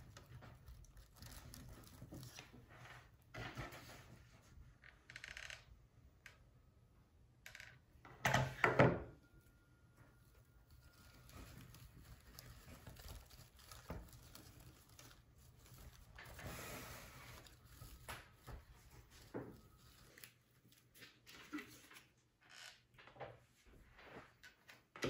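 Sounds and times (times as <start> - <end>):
ribbon and greenery rustling: 10.2 - 21.7.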